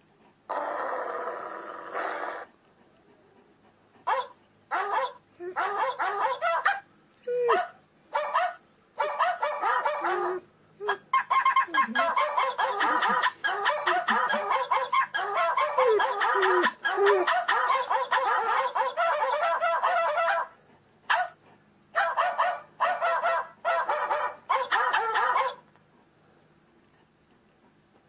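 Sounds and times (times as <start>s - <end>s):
dog yelping and whining: 4.1s - 20.5s, 22.0s - 25.6s.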